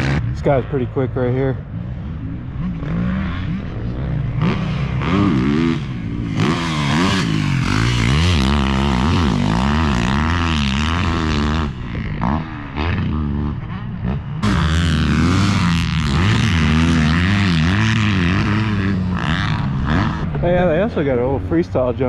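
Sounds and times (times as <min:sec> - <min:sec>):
motocross engine revving: 0:00.0 - 0:22.0.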